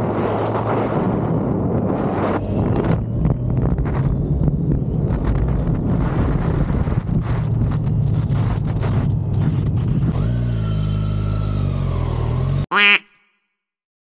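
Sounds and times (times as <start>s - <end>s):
wind buffeting on microphone: 0.0s - 10.3s
motorcycle engine running: 6.9s - 12.9s.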